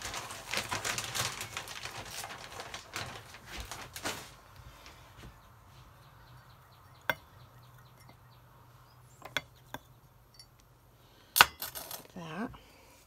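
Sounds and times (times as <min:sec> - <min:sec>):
potting soil rustling and crackling: 0:00.0 - 0:06.1.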